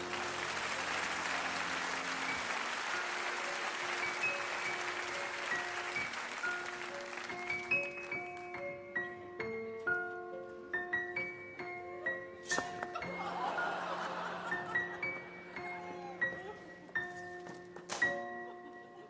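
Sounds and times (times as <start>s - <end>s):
audience applauding: 0.0s - 8.5s
slow background music: 0.0s - 19.0s.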